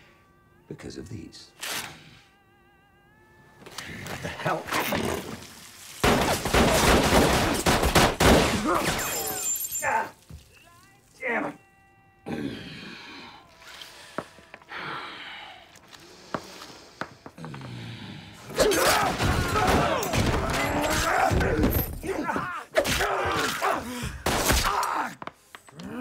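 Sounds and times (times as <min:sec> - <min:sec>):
glass smashing: 0:05.9 - 0:10.3
punches and thuds: 0:06.0 - 0:09.1, 0:18.6 - 0:24.8
men grunting and shouting: 0:12.2 - 0:13.3, 0:18.4 - 0:25.2.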